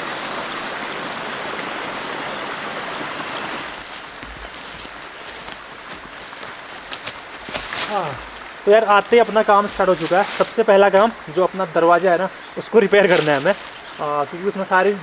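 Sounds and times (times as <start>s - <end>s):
stream babbling: 0.0s - 15.0s
footsteps: 3.6s - 10.7s, 13.0s - 13.8s
faint rustling: 3.8s - 10.7s.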